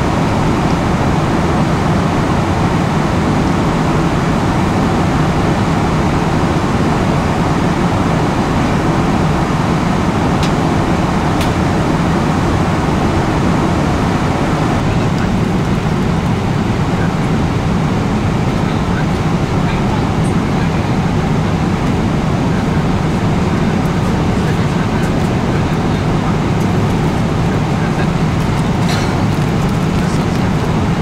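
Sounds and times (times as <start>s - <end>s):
airplane cabin engine hum: 0.0s - 31.0s.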